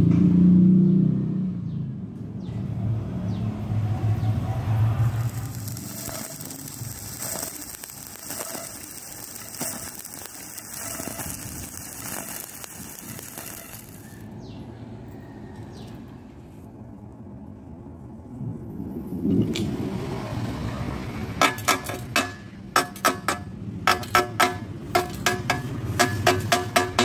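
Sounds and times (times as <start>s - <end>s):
welding arc crackling: 4.6s - 14.2s, 21.4s - 27.0s.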